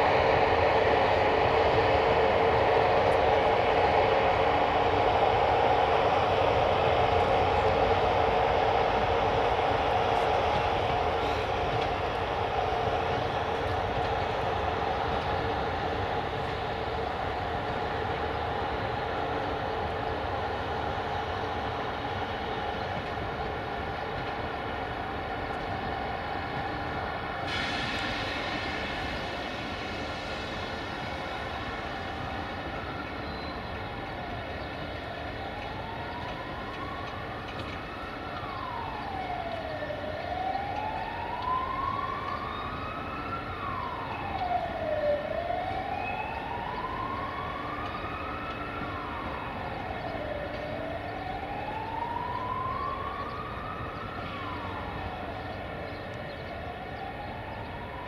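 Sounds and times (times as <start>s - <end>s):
emergency siren wailing: 0.0s - 58.0s
rail yard hum: 0.0s - 58.0s
hiss: 9.0s - 18.7s, 27.2s - 34.0s.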